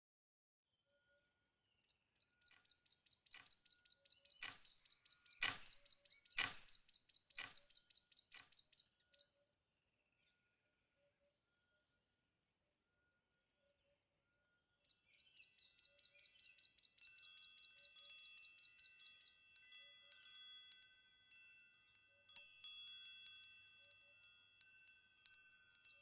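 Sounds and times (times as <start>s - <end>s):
bird chirps: 1.8s - 9.3s
sharp clicks: 4.4s - 4.8s, 5.4s - 6.8s, 7.4s - 7.7s.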